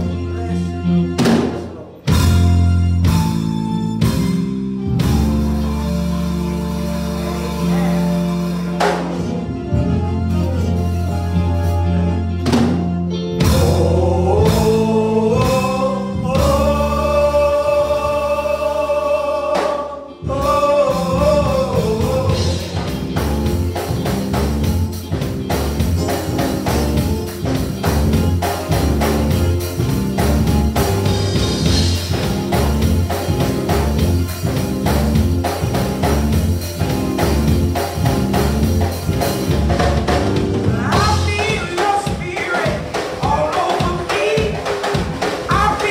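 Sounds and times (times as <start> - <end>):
drums and bass accompaniment: 0.0 - 45.9
group singing gospel song: 13.4 - 39.4.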